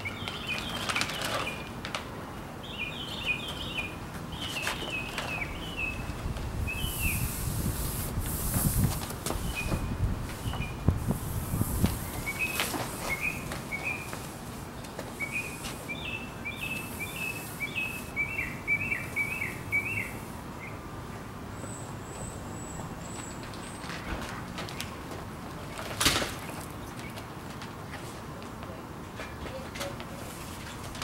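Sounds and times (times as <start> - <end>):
bird chirping: 2.6 - 7.4, 12.0 - 14.2, 15.2 - 20.8.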